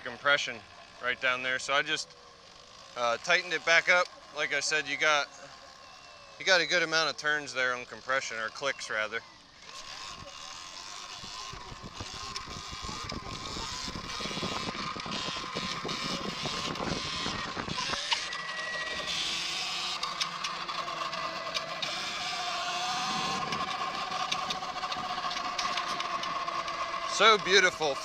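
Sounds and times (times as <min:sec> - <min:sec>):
electric motor whine: 0:00.0 - 0:28.0
wind on microphone: 0:11.2 - 0:18.2.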